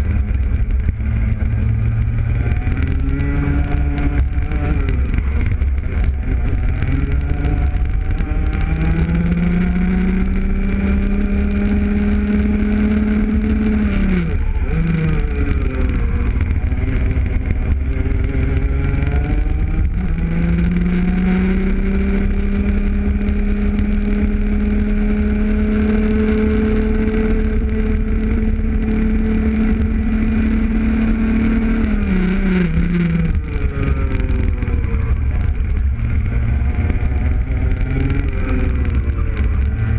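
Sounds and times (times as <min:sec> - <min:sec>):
heavy low rumble: 0:00.0 - 0:39.9
kart engine revving: 0:00.0 - 0:39.9.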